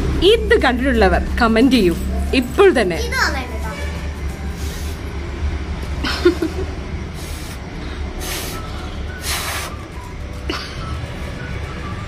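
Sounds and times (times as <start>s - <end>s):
child blowing puffs of breath: 4.5s - 5.2s, 7.1s - 9.9s.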